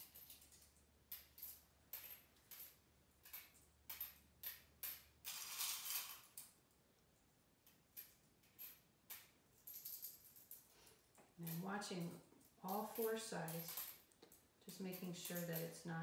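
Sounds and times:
coins clinking: 0:00.0 - 0:06.4, 0:08.0 - 0:14.1, 0:14.7 - 0:16.0
coins rattling in metal bowl: 0:00.0 - 0:06.4, 0:11.4 - 0:14.0, 0:14.9 - 0:16.0.

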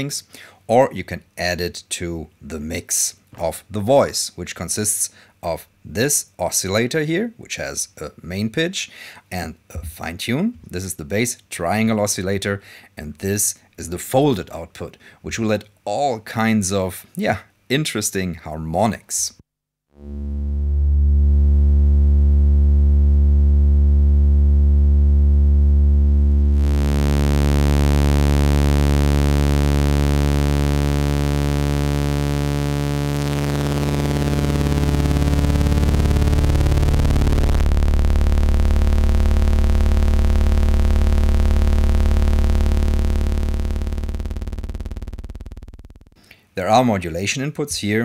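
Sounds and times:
synthesizer oscillator droning: 0:20.0 - 0:46.2.

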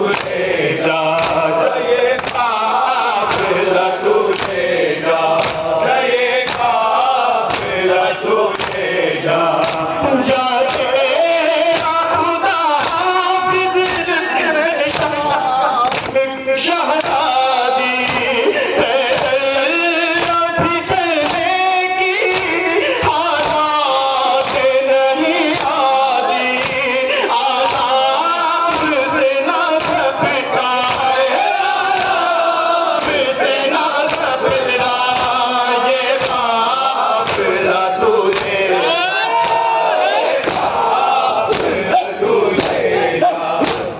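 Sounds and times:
men chanting a lament: 0:00.0 - 0:43.9
person reciting into a microphone: 0:00.0 - 0:43.9
hands striking chests: 0:00.1 - 0:00.4, 0:01.1 - 0:01.5, 0:02.2 - 0:02.5, 0:03.2 - 0:03.6, 0:04.3 - 0:04.6, 0:05.4 - 0:05.7, 0:06.4 - 0:06.8, 0:07.4 - 0:07.8, 0:08.5 - 0:08.9, 0:09.6 - 0:10.0, 0:10.6 - 0:10.9, 0:11.7 - 0:12.0, 0:12.8 - 0:13.1, 0:14.9 - 0:16.2, 0:18.0 - 0:18.4, 0:19.1 - 0:19.4, 0:20.2 - 0:20.4, 0:21.2 - 0:21.5, 0:22.2 - 0:22.6, 0:23.4 - 0:23.6, 0:24.4 - 0:24.8, 0:25.5 - 0:25.8, 0:26.5 - 0:27.9, 0:28.6 - 0:29.1, 0:29.8 - 0:30.2, 0:30.8 - 0:31.2, 0:31.9 - 0:32.3, 0:32.9 - 0:35.5, 0:36.2 - 0:36.6, 0:37.2 - 0:37.6, 0:38.3 - 0:38.7, 0:39.4 - 0:39.7, 0:40.4 - 0:40.8, 0:41.5 - 0:41.9, 0:42.6 - 0:42.8, 0:43.6 - 0:43.9.

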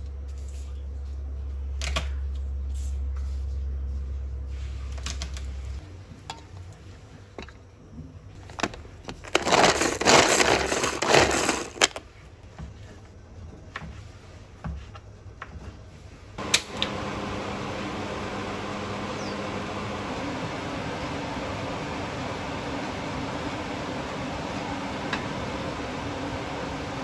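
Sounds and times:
gas burner clicking alight: 0:16.4 - 0:17.0.

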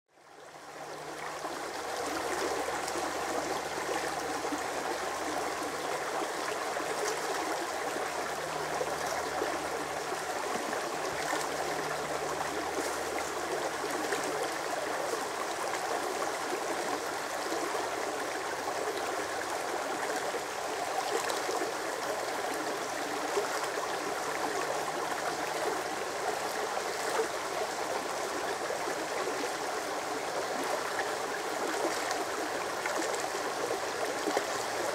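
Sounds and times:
brook rippling over rocks: 0:00.3 - 0:34.9.

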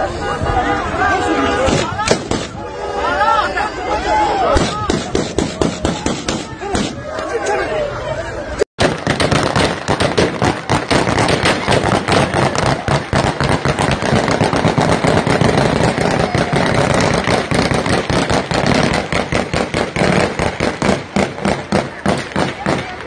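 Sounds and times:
crowd voices: 0:00.0 - 0:23.0
gunfire bursts: 0:01.7 - 0:02.6, 0:04.6 - 0:07.0, 0:08.8 - 0:23.0.

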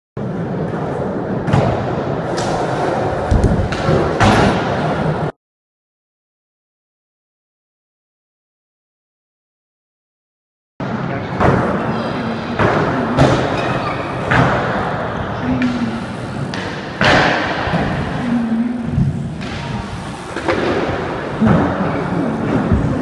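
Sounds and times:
bangs on skatepark ramps: 0:01.4 - 0:04.9.

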